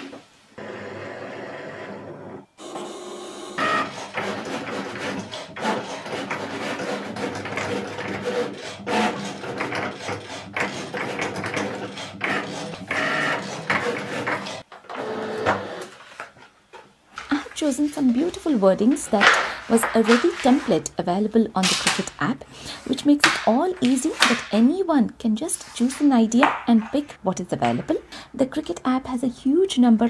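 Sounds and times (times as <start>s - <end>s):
cutting machine motors whirring: 0.6s - 15.8s
vinyl sheet rustling: 15.9s - 28.1s.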